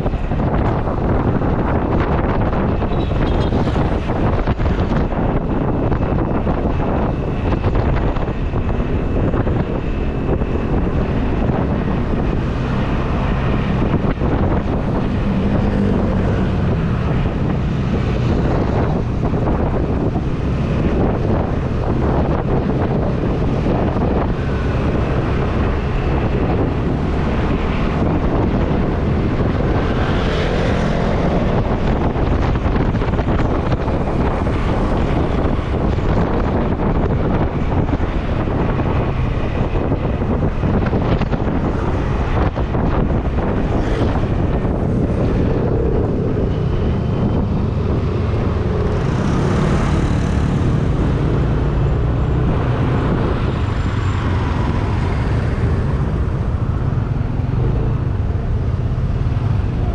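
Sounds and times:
road traffic noise: 0.0 - 59.9
wind rushing over microphone: 0.0 - 59.9.

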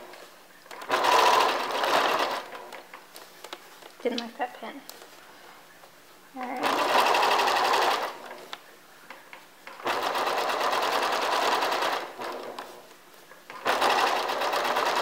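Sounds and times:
sewing machine stitching: 0.7 - 2.8, 6.6 - 8.4, 9.7 - 12.8, 13.5 - 15.0.

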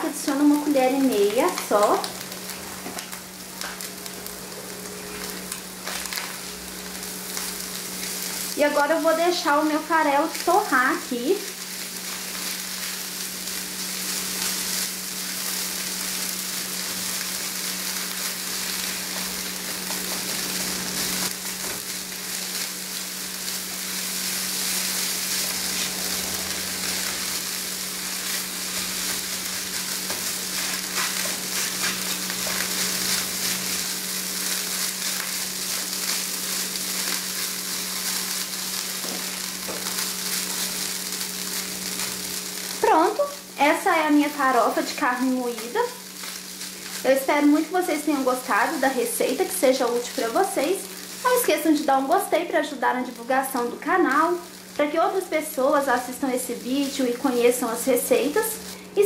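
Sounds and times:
food sizzling in a frying pan: 0.0 - 59.0
spatula stirring in a pan: 22.5 - 42.2.

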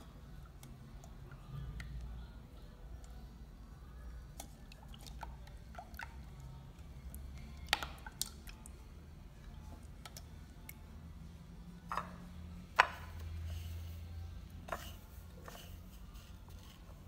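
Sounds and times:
wet squishing and dripping: 4.2 - 11.1.

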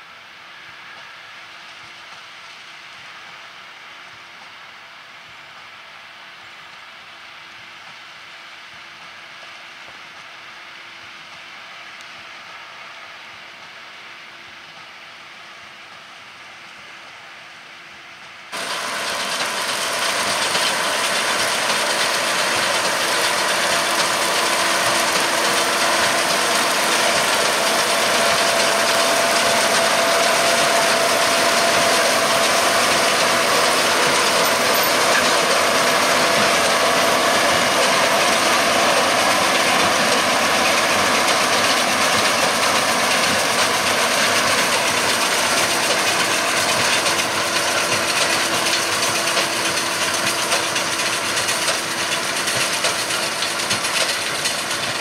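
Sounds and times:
tractor engine running under load: 18.5 - 55.0
baler mechanism working: 18.6 - 55.0.

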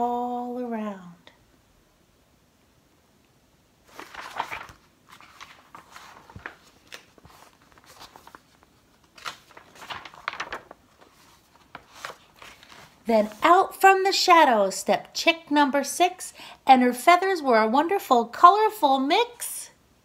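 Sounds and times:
book pages rustling: 3.8 - 13.8.

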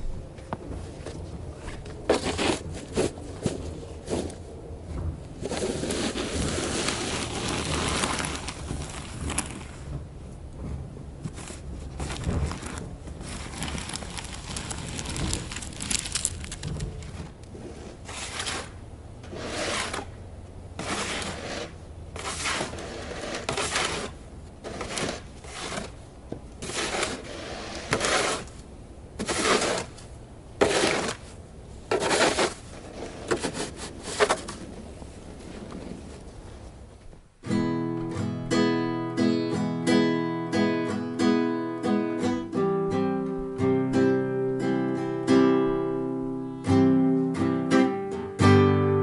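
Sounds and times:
snow shovel scraping pavement: 1.6 - 4.4, 5.4 - 10.0, 11.2 - 26.0, 26.6 - 28.6, 29.2 - 36.7.

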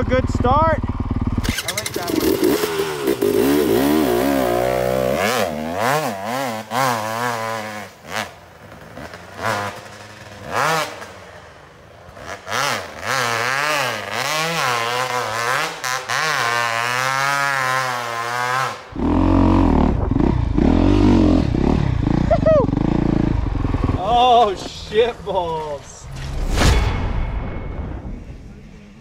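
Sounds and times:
close dirt bike engine rumble: 0.0 - 25.9
dirt bike engines revving: 0.0 - 26.3.

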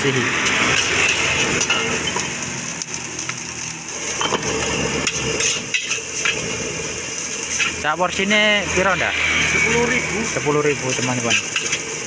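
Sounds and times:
rice sizzling in a pan: 0.0 - 12.0
metal spatula scraping a wok: 0.4 - 2.3, 4.2 - 6.6, 7.3 - 7.8, 8.8 - 12.0.

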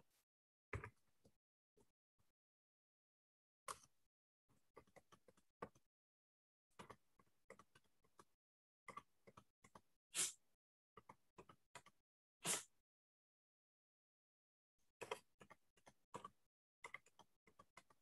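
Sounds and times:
faint clicks and taps: 4.5 - 5.8, 6.7 - 8.3, 8.9 - 9.9, 11.0 - 12.0, 15.0 - 18.0.

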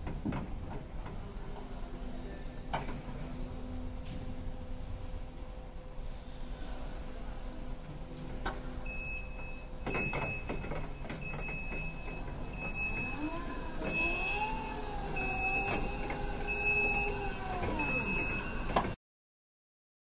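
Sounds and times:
high warning beeps: 8.9 - 13.3, 15.2 - 15.9, 16.5 - 18.8.

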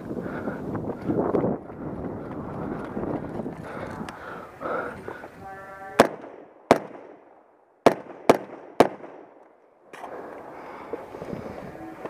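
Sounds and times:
rifle shots: 6.0 - 9.4.

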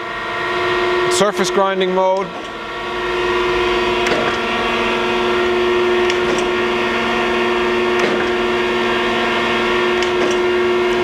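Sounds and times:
grinder mechanical hum: 0.0 - 11.0
sharp machine click: 8.0 - 8.3.

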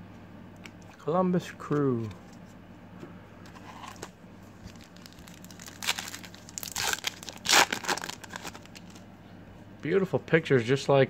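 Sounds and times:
foil wrapper crinkling and tearing: 4.6 - 9.0.

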